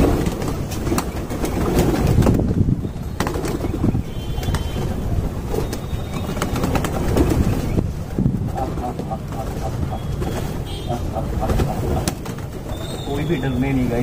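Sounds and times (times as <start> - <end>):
pigeon wingbeats fluttering: 0.0 - 13.3.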